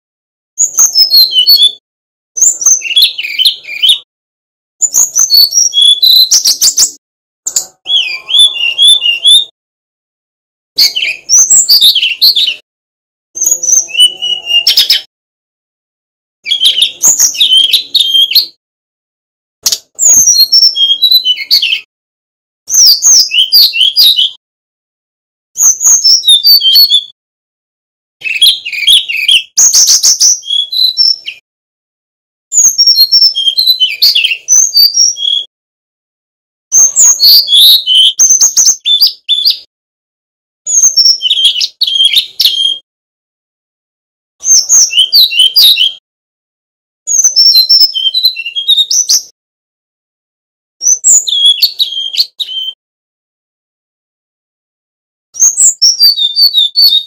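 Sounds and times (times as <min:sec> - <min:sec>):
bird singing whistled notes: 0:00.6 - 0:01.8, 0:02.4 - 0:04.1, 0:04.8 - 0:09.6, 0:10.8 - 0:12.6, 0:13.4 - 0:15.1, 0:16.4 - 0:18.6, 0:19.6 - 0:21.9, 0:22.7 - 0:24.4, 0:25.6 - 0:27.2, 0:28.2 - 0:31.4, 0:32.5 - 0:35.5, 0:36.7 - 0:39.7, 0:40.7 - 0:42.8, 0:44.4 - 0:46.0, 0:47.1 - 0:49.3, 0:50.8 - 0:52.8, 0:55.4 - 0:57.0.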